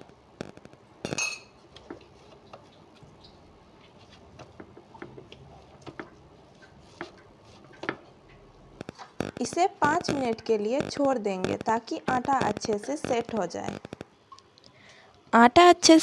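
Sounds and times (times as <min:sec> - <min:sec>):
hands patting dough: 0:03.7 - 0:14.1.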